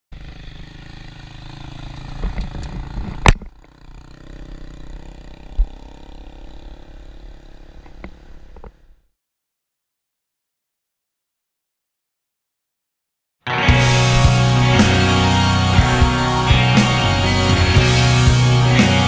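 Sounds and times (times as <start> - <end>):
motorcycle running: 0.1 - 8.8, 13.5 - 19.0
vehicle rumble on dirt road: 0.1 - 9.0.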